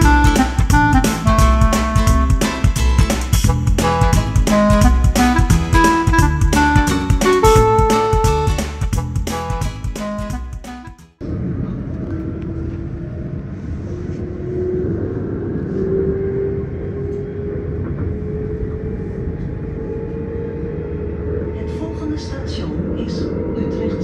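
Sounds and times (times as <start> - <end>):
train rumble: 0.0 - 10.4, 11.2 - 24.0
guitar music: 0.0 - 11.2.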